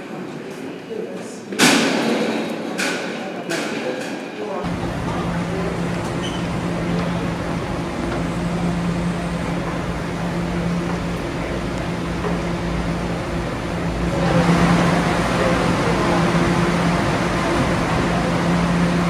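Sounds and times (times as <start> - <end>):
subway train humming: 3.0 - 19.0
station noise: 4.6 - 19.0.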